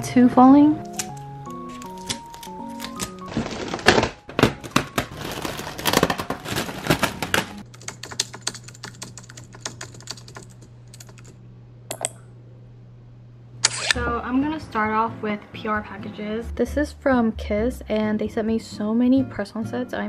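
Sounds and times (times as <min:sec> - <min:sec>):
low steady hum: 0:00.0 - 0:20.0
foil balloons crinkling: 0:00.8 - 0:07.7.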